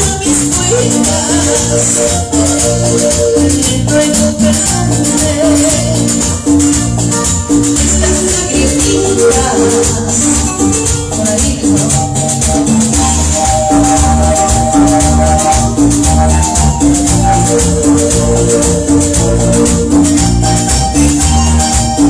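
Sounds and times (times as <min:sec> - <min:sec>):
woman singing into microphone: 0:00.0 - 0:15.7
backing track with bass beat: 0:00.0 - 0:22.0.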